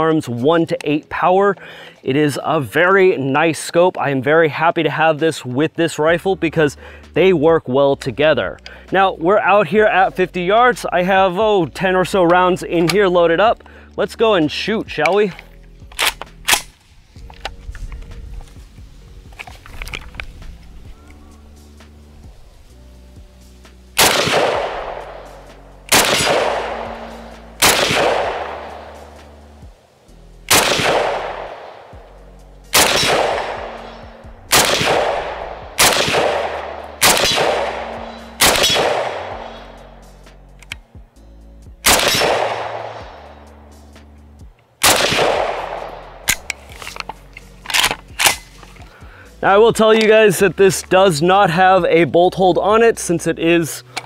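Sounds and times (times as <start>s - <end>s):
gun handling clicks: 15.0s - 18.6s, 19.3s - 21.2s, 32.7s - 39.7s, 40.6s - 40.9s, 44.6s - 48.9s
pistol shots: 24.0s - 25.3s, 25.9s - 29.2s, 30.5s - 31.9s, 32.7s - 39.8s, 41.8s - 43.2s, 44.8s - 46.5s.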